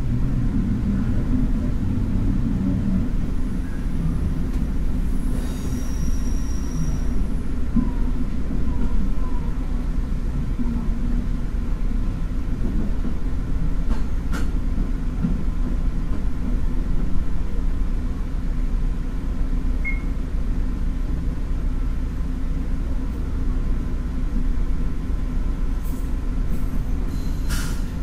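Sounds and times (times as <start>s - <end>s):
railcar engine and wheel rumble: 0.0s - 28.0s
short high beep: 19.8s - 20.1s.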